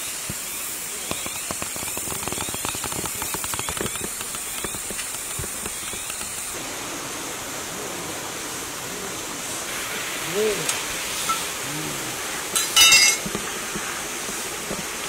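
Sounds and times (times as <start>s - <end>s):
high insect hiss: 0.0s - 15.0s.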